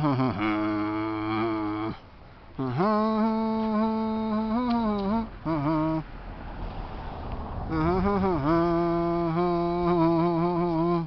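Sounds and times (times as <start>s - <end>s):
man humming: 0.0s - 6.1s, 7.7s - 11.0s
rushing breathy noise: 5.3s - 9.0s.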